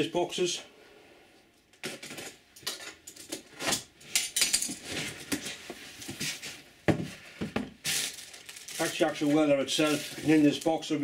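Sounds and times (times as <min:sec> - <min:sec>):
packing tape pulled off: 0:07.8 - 0:10.7.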